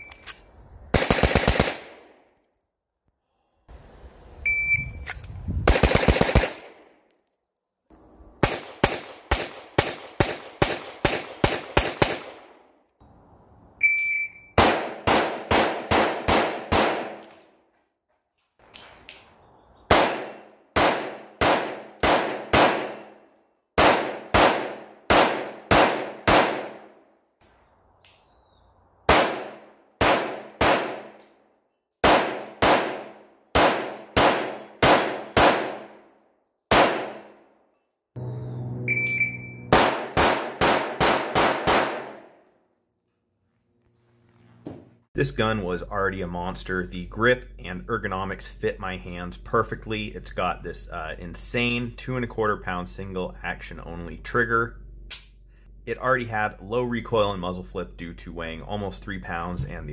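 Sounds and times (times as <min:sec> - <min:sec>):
rapid pistol shots: 0:00.9 - 0:02.2, 0:05.6 - 0:06.8, 0:08.4 - 0:12.5, 0:14.6 - 0:17.3, 0:19.9 - 0:23.1, 0:23.8 - 0:26.9, 0:29.1 - 0:31.2, 0:32.0 - 0:36.0, 0:36.7 - 0:37.4, 0:39.7 - 0:42.3
shot timer beep: 0:04.5 - 0:05.0, 0:13.8 - 0:14.6, 0:38.2 - 0:39.7.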